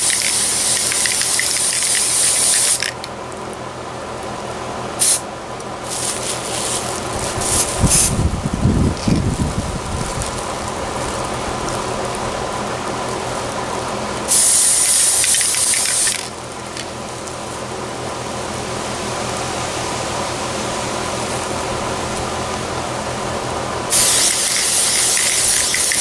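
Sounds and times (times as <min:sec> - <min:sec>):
aerosol spray can hissing: 0:00.0 - 0:03.0, 0:05.0 - 0:05.2, 0:14.3 - 0:16.3, 0:23.9 - 0:26.0
steady background hum: 0:00.0 - 0:26.0.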